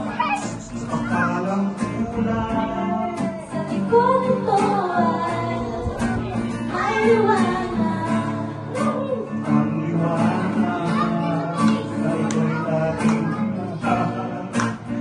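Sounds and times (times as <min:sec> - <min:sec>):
strummed acoustic guitar: 0:00.0 - 0:15.0
woman singing into microphone: 0:02.0 - 0:09.4.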